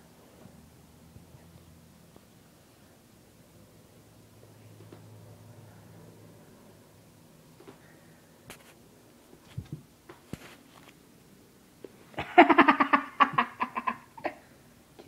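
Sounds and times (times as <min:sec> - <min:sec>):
person giggling: 0:12.2 - 0:14.5.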